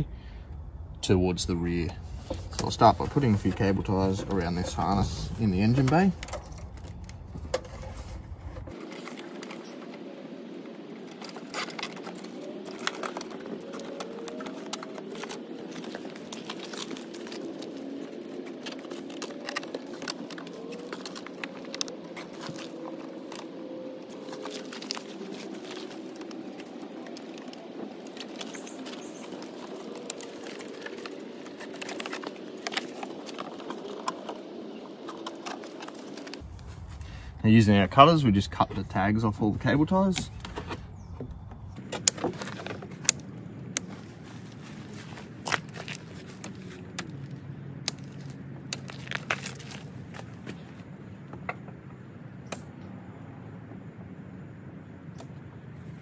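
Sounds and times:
hands clicking and rustling: 0:11.0 - 0:36.5, 0:41.8 - 0:50.8.

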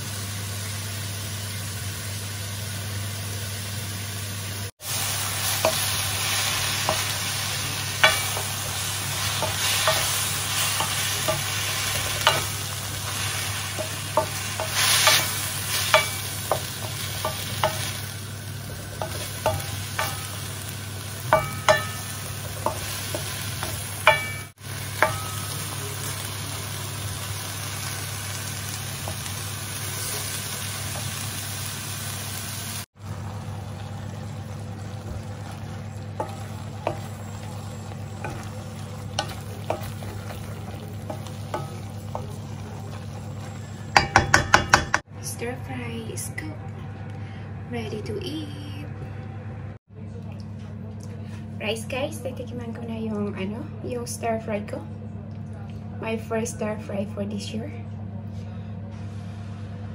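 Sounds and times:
vegetables sizzling in a wok: 0:00.0 - 0:45.1
wooden spoon scraping a pan: 0:05.4 - 0:18.0.

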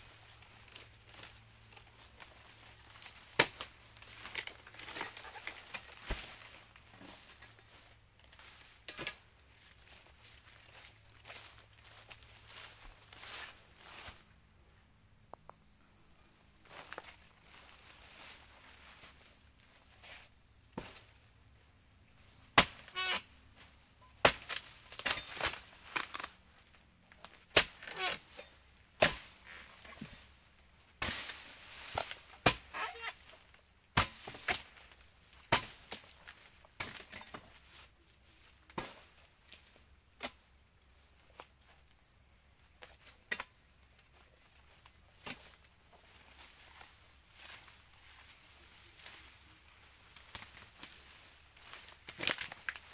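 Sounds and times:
high insect drone: 0:00.0 - 0:52.9.

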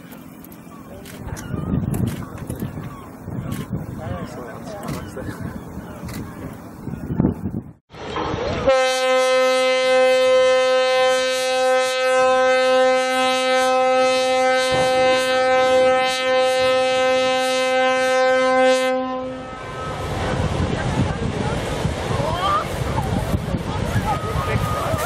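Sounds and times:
ship's horn blast: 0:08.6 - 0:20.6
rushing water from ship launch: 0:19.5 - 0:25.0.

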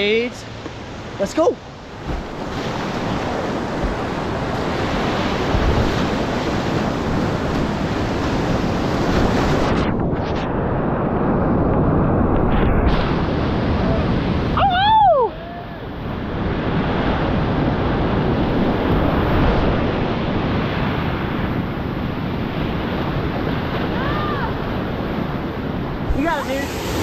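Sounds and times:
whitewater rushing: 0:23.3 - 0:27.0.

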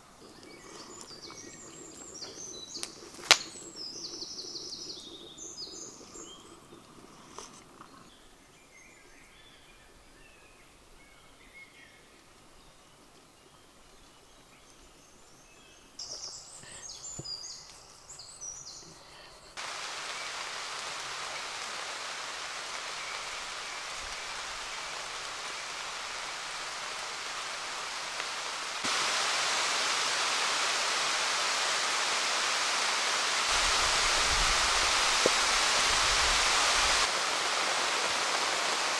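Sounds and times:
heavy rain hissing: 0:00.0 - 0:07.7, 0:16.0 - 0:38.9
birds chirping: 0:00.0 - 0:38.9.

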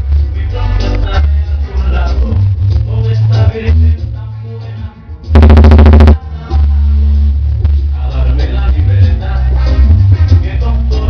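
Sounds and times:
bass-heavy dance music: 0:00.0 - 0:11.0.

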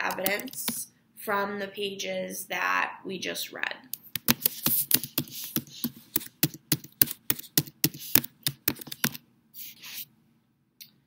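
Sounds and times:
typing on a keyboard: 0:00.1 - 0:00.8, 0:04.1 - 0:09.2
soft hissy sounds: 0:03.4 - 0:10.2.

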